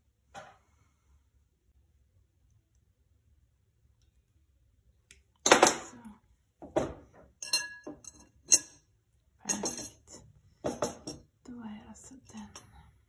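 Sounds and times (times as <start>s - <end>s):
glass vase clinking: 7.4s - 8.8s, 9.5s - 11.2s.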